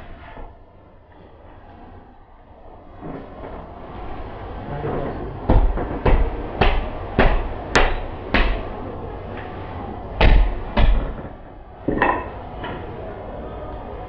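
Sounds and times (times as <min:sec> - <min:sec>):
hatchet chopping on wooden block: 0:05.5 - 0:08.6.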